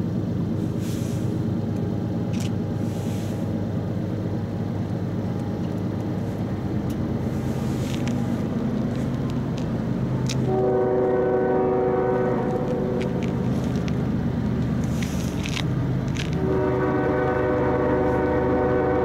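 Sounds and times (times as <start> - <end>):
low rumble of train: 0.0 - 19.0
locomotive air horn blast: 10.4 - 13.7, 16.2 - 19.0.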